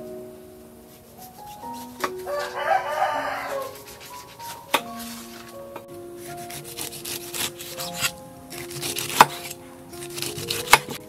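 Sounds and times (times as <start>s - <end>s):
soft background music: 0.0s - 11.0s
knife scraping pineapple rind: 3.6s - 5.3s, 6.4s - 11.0s.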